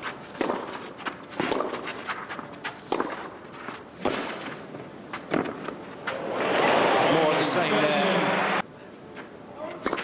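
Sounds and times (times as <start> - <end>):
shoes scuffing on clay: 0.0 - 6.2
tennis ball hit with racket: 0.2 - 4.6.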